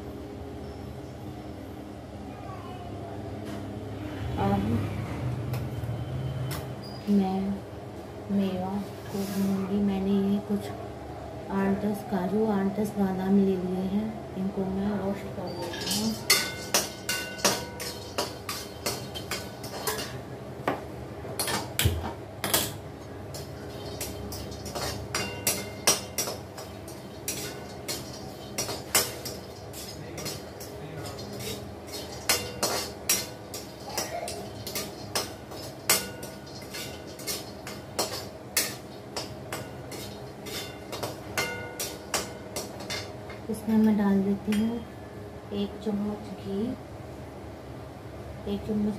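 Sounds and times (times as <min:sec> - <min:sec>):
metal spoon clinking on a pan: 0:15.4 - 0:20.2, 0:22.4 - 0:43.4.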